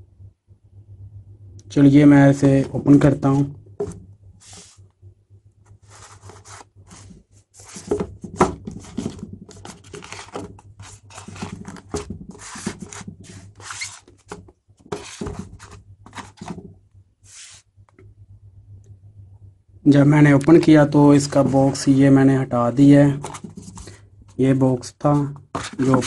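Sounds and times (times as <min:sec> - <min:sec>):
cardboard rubbing on cardboard: 0:03.3 - 0:04.8, 0:05.7 - 0:16.6, 0:17.2 - 0:17.7, 0:23.2 - 0:23.9, 0:25.5 - 0:26.0.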